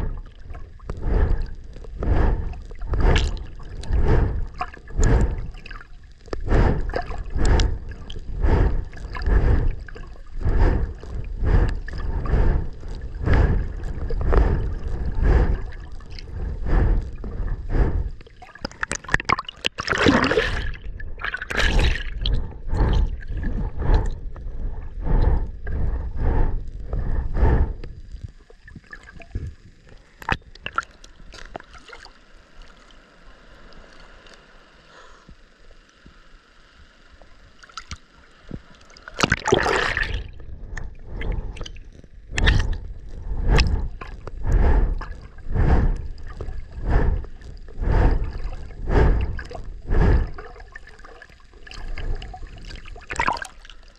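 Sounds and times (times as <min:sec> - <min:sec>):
underwater swimming strokes sloshing: 0:00.0 - 0:34.5, 0:37.8 - 0:53.9.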